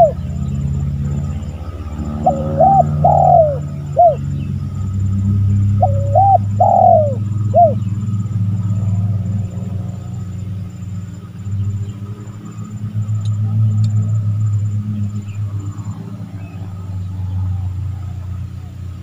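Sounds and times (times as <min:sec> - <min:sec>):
dove cooing: 0:00.0 - 0:04.3, 0:05.5 - 0:09.2.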